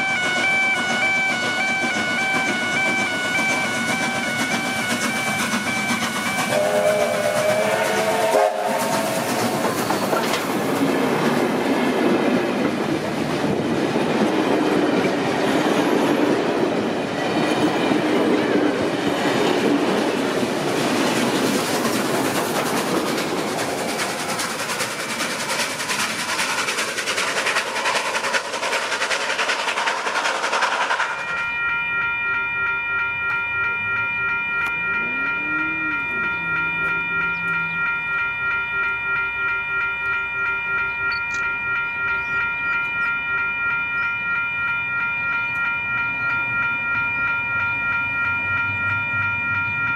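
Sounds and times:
high held tones chord: 0:00.0 - 0:10.0, 0:31.0 - 0:49.9
train rolling past: 0:00.0 - 0:49.9.

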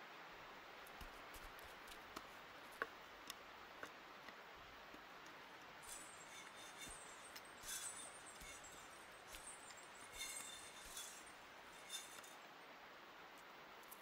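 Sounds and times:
small metal bells jingling: 0:05.8 - 0:12.4.

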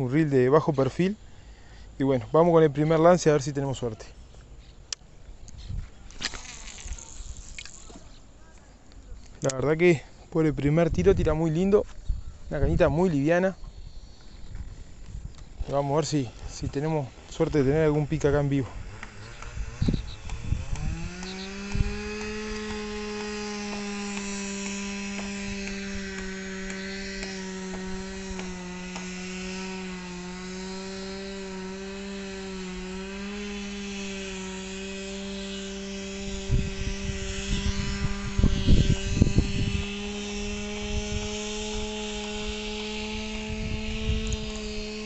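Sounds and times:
chainsaw running at high revs: 0:06.2 - 0:08.1, 0:14.6 - 0:45.0.

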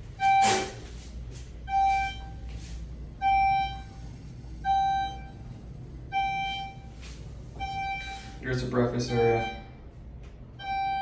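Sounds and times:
low steady hum: 0:00.0 - 0:11.0
elevator chime tone: 0:01.6 - 0:09.8, 0:10.6 - 0:11.0.

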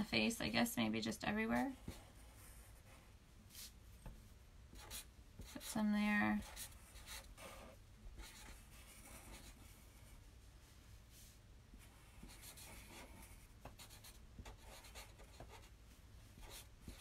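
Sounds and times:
marker scratching on paper: 0:01.6 - 0:03.7, 0:04.7 - 0:05.8, 0:06.4 - 0:10.1, 0:11.8 - 0:15.7, 0:16.4 - 0:17.0.

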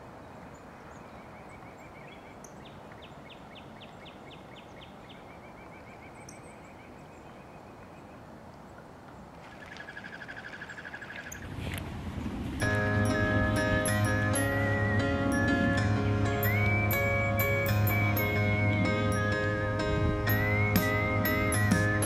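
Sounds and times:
songbirds calling: 0:00.0 - 0:11.5, 0:12.2 - 0:22.0
bird trilling: 0:09.5 - 0:11.5, 0:13.7 - 0:19.4, 0:20.3 - 0:22.0.

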